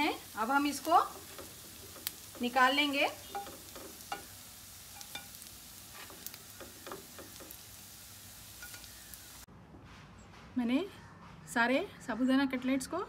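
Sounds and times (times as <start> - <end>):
cutlets sizzling in oil: 0.0 - 9.5.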